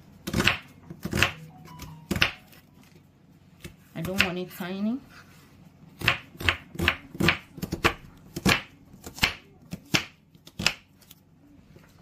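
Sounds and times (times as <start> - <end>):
knife chopping on wooden board: 0.2 - 1.4, 6.0 - 10.8.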